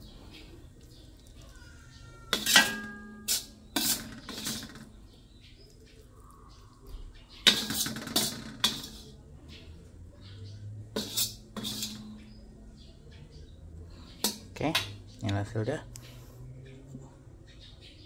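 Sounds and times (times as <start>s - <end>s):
metal spatula scraping wok: 2.3s - 5.0s, 7.4s - 9.2s, 10.9s - 12.4s.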